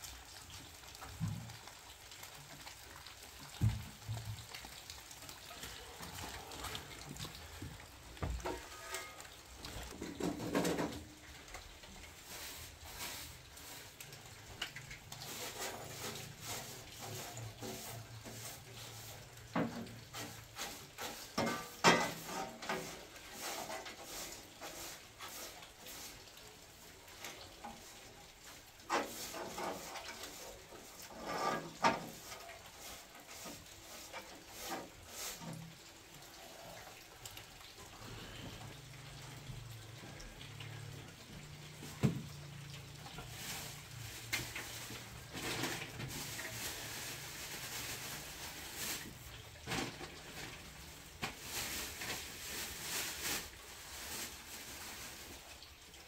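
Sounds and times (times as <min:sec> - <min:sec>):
broom scraping metal: 0:08.4 - 0:09.5, 0:28.9 - 0:35.6.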